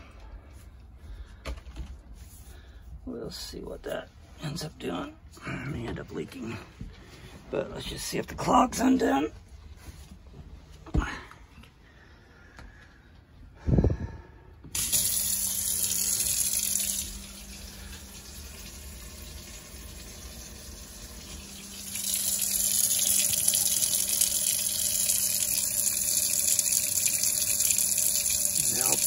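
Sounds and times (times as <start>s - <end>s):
faucet water running into sink: 14.7s - 29.0s.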